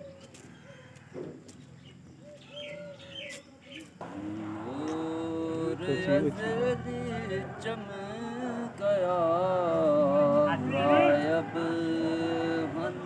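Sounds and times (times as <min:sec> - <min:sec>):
small birds chirping: 0:00.0 - 0:13.0
man singing long notes: 0:04.0 - 0:13.0.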